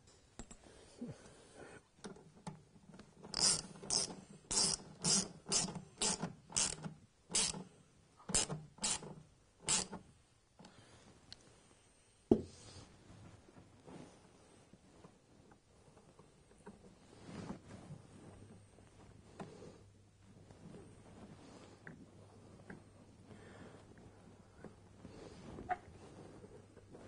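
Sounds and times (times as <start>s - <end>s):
hand ratchet strokes: 3.2s - 7.7s, 8.3s - 10.0s.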